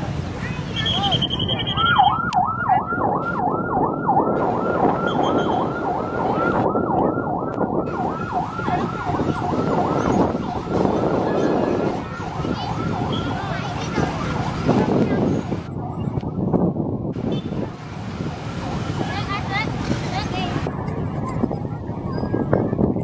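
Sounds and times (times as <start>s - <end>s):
heavy vehicles rumbling past: 0.0s - 23.0s
siren in fast yelp: 0.8s - 17.1s, 21.4s - 23.0s.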